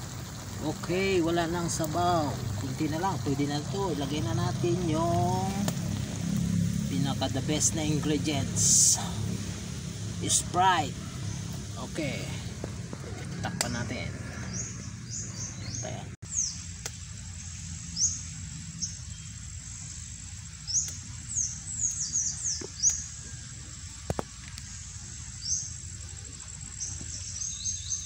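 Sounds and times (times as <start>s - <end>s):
birds chirping: 0.0s - 28.0s
high insect whine: 0.0s - 28.0s.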